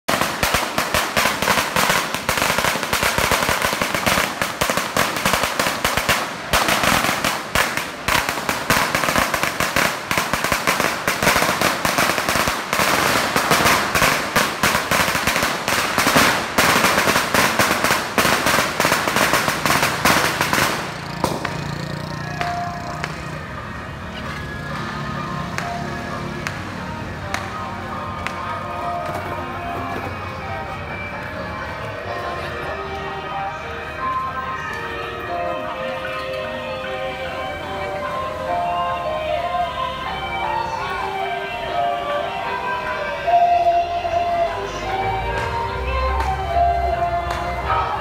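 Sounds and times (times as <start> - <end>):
firecrackers crackling rapidly: 0.0 - 25.0.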